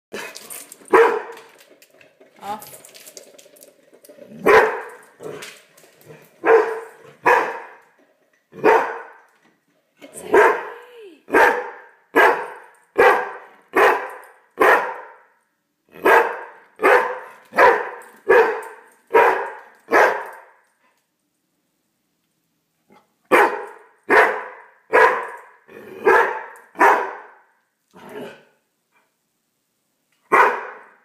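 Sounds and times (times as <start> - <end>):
dog barking: 0.9 - 1.3, 4.4 - 4.9, 6.4 - 7.8, 8.6 - 9.2, 10.3 - 10.7, 11.3 - 15.3, 16.0 - 20.6, 23.3 - 27.5, 30.3 - 31.0.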